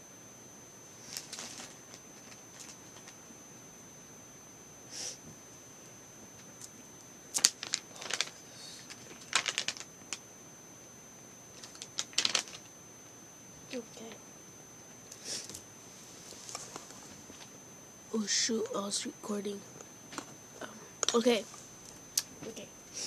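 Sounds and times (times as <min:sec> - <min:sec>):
thin high whine: 0:00.0 - 0:23.0
packaging crinkling and clicking: 0:07.4 - 0:10.2, 0:11.6 - 0:12.7.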